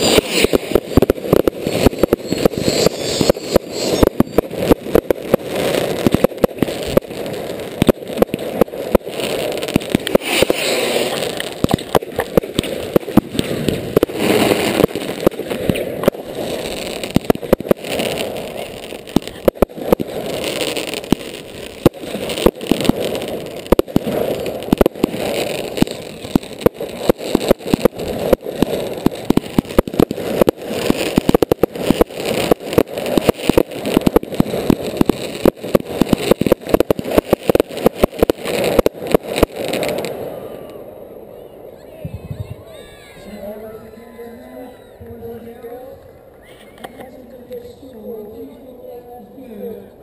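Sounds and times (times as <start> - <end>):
hiss of firework launches: 0.0 - 4.4, 9.9 - 11.9
fireworks bangs and pops: 0.0 - 49.8.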